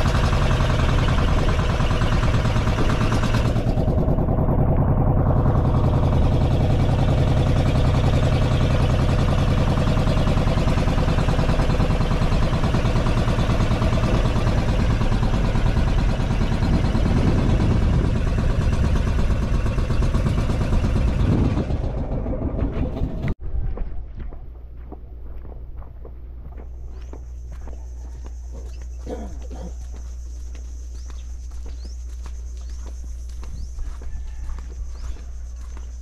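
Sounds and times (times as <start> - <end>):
boat engine chugging: 0.0 - 23.4, 24.6 - 36.0
footsteps: 23.4 - 36.0.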